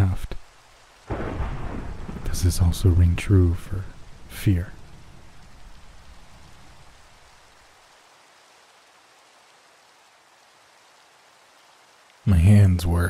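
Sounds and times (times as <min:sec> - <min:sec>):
faint rain falling: 0:00.0 - 0:13.0
thunder rumble: 0:01.1 - 0:07.4.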